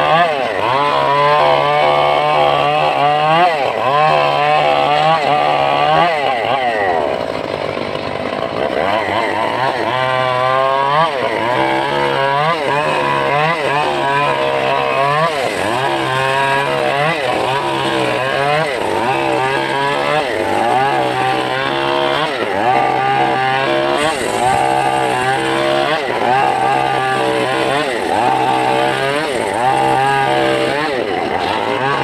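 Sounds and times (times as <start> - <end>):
saw blade cutting log: 0.0 - 32.0
sawmill engine running: 0.0 - 32.0.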